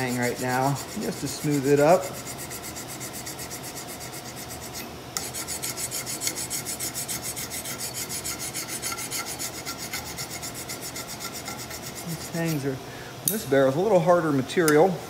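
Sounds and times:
file rasping on metal: 0.0s - 12.7s.

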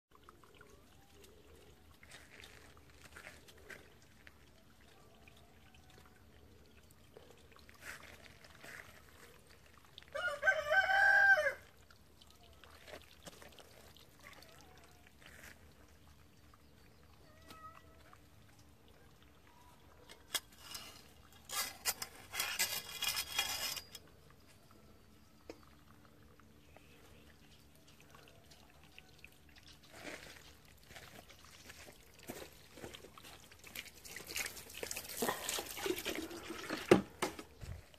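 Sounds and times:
rooster crowing: 10.1s - 11.7s.

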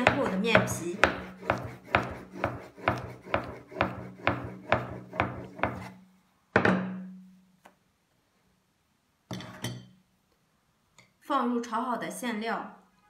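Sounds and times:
rolling pin on wooden board: 0.0s - 6.0s.

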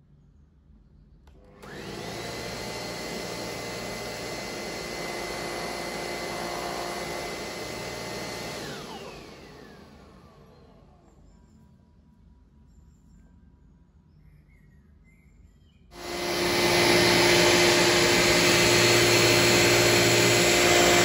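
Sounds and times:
vacuum cleaner switch click: 1.3s - 2.5s
vacuum cleaner motor whine: 1.3s - 11.3s, 15.9s - 21.0s.

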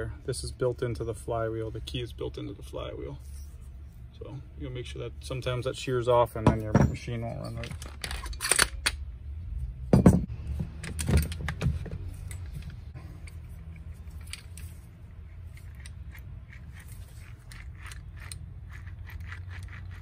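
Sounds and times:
metal engine parts clunking: 6.0s - 9.0s, 9.9s - 18.9s
bearings turned with rough clicking: 10.8s - 20.0s.

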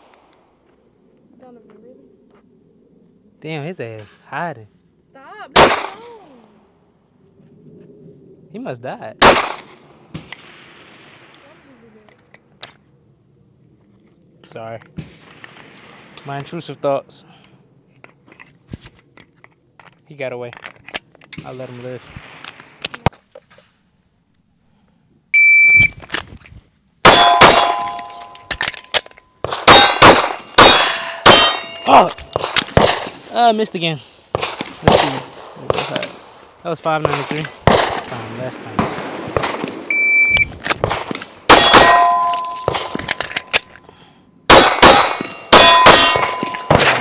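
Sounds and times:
rapid pistol shots: 5.6s - 6.0s, 9.2s - 11.1s, 29.4s - 31.8s, 32.4s - 33.1s, 34.4s - 36.3s, 37.0s - 39.9s, 40.8s - 43.2s, 44.5s - 47.0s
shot timer beep: 25.4s - 26.0s, 39.9s - 40.5s
steel targets ringing: 27.0s - 28.5s, 29.7s - 32.1s, 41.5s - 43.6s, 44.5s - 47.0s.

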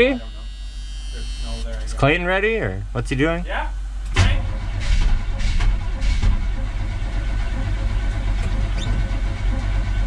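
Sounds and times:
starter cranking car engine: 4.2s - 10.0s.

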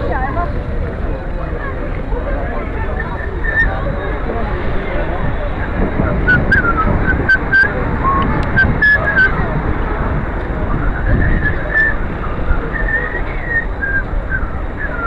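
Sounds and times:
wind rumble: 0.0s - 15.0s
person whistling: 12.6s - 15.0s.

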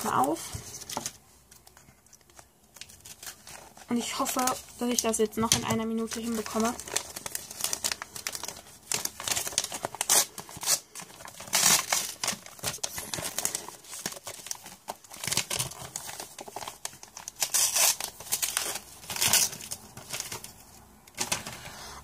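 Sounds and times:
paper crinkling and rustling: 0.0s - 22.0s
paper tearing: 6.1s - 20.4s.

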